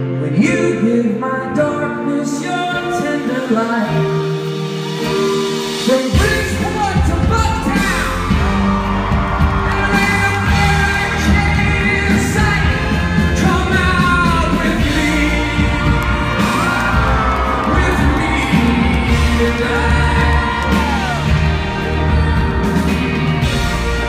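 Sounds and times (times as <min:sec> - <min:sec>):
live rock band playing: 0:02.0 - 0:24.0
audience yelling and whooping: 0:06.2 - 0:24.0.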